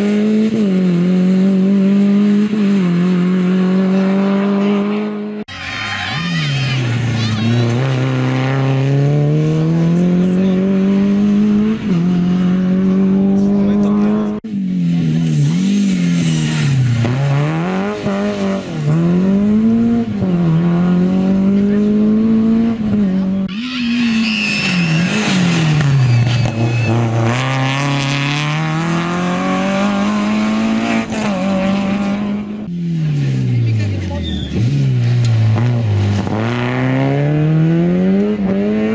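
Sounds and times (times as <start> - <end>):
rally car engines revving: 0.0 - 38.9
high squeal: 5.5 - 7.6, 23.5 - 27.6.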